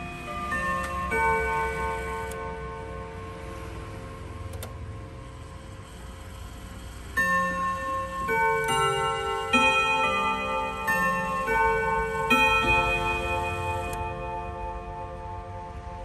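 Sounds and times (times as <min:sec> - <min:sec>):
clock chime on gong rods: 0:00.0 - 0:16.0.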